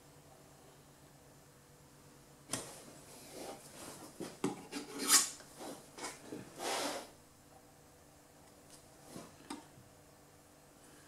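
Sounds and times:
putty knife scraping and tapping: 0:04.2 - 0:06.2.

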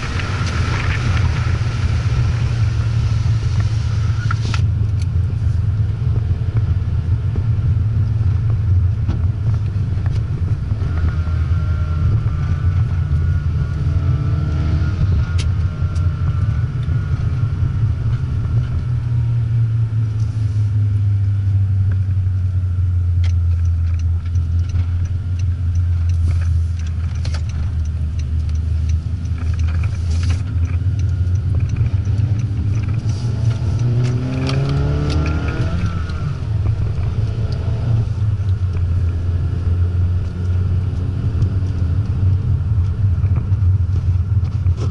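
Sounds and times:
car exhaust drone: 0:00.0 - 0:44.9.

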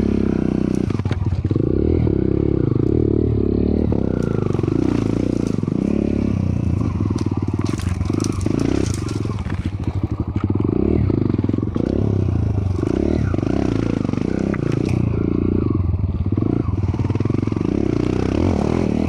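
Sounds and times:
dirt bike engine revving: 0:00.0 - 0:19.0
stones clattering under tyres: 0:04.1 - 0:13.6.

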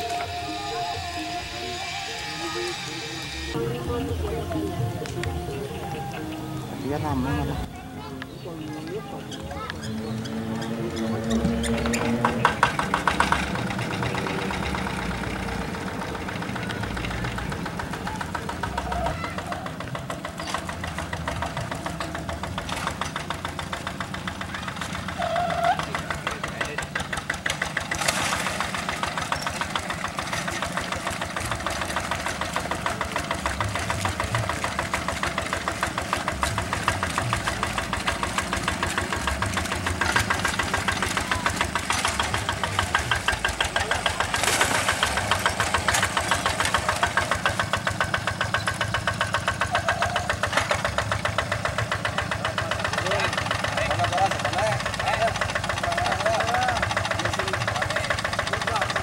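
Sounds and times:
diesel engine chugging: 0:00.0 - 0:59.0.

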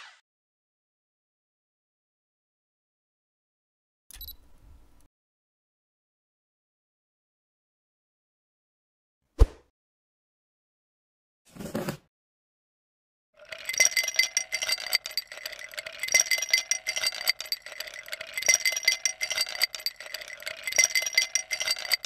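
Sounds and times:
crushed ice clinking into cup: 0:13.4 - 0:22.0
ice maker hum: 0:13.4 - 0:22.0.

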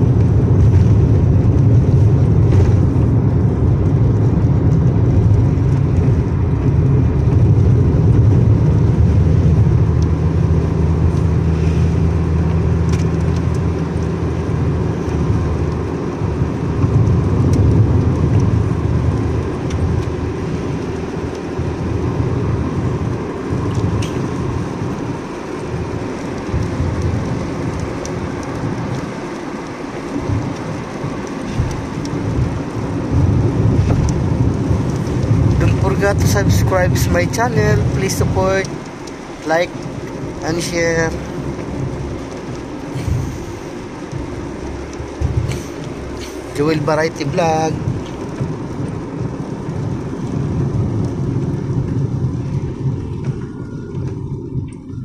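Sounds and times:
engine and tyre rumble on wet road: 0:00.0 - 0:55.0.

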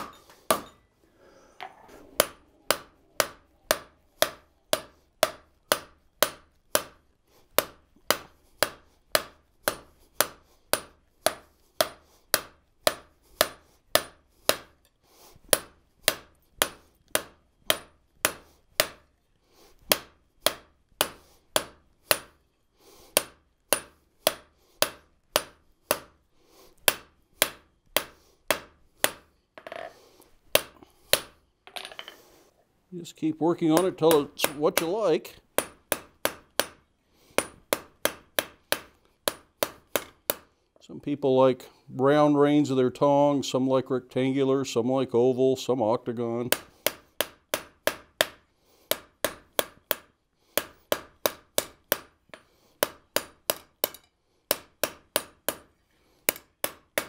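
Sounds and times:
hammer striking hot steel on anvil: 0:00.0 - 0:00.8, 0:02.0 - 0:07.0, 0:07.6 - 0:14.9, 0:15.5 - 0:19.1, 0:19.9 - 0:22.4, 0:23.2 - 0:26.1, 0:26.9 - 0:29.3, 0:30.6 - 0:31.4, 0:33.7 - 0:35.0, 0:35.6 - 0:36.8, 0:37.4 - 0:40.5, 0:46.5 - 0:55.7, 0:56.3 - 0:57.0.

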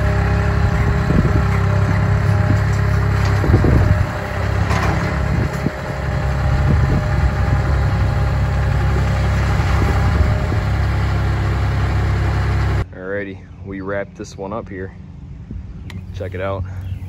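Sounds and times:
loader engine running: 0:00.0 - 0:12.9
metal clanks: 0:00.6 - 0:05.8.

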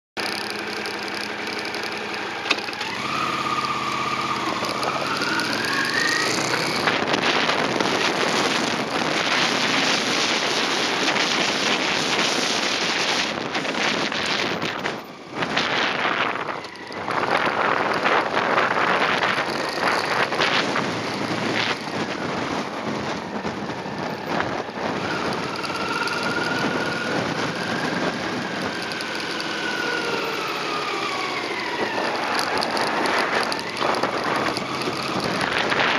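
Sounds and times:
motorcycle engine: 0:00.2 - 0:35.9
wind rush on microphone: 0:02.5 - 0:35.9.

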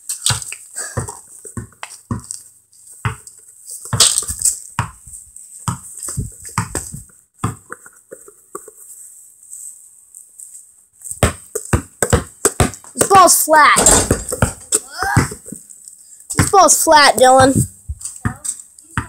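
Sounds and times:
knocks and thumps on concrete: 0:11.2 - 0:15.6, 0:17.4 - 0:18.6.

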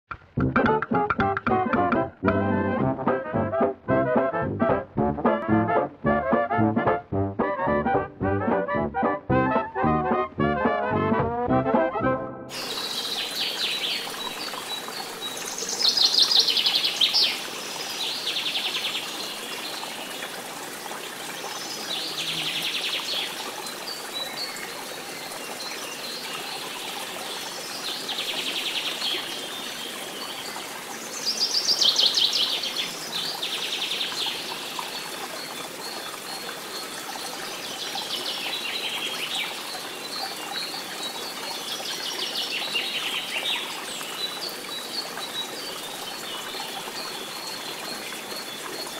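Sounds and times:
trickling water: 0:00.1 - 0:11.8, 0:12.5 - 0:48.9.

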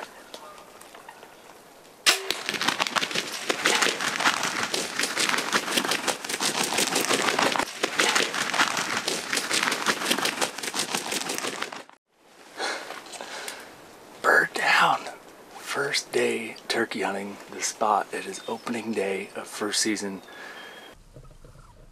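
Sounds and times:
rapid crackling and rustling: 0:00.0 - 0:12.0
single sharp shot: 0:02.0 - 0:02.8.

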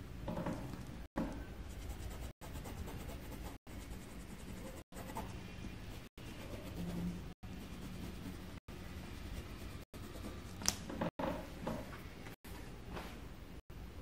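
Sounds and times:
pencil scratching on paper: 0:01.7 - 0:10.6.

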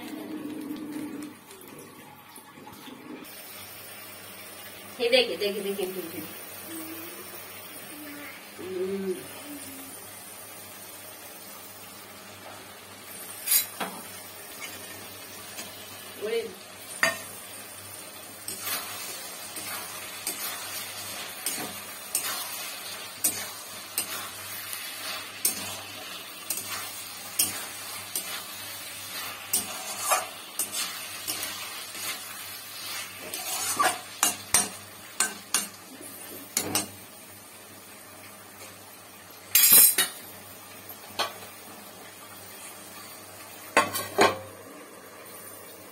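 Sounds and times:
sauce sizzling: 0:00.0 - 0:45.9
spatula scraping in metal pan: 0:13.4 - 0:13.8, 0:26.5 - 0:34.7.

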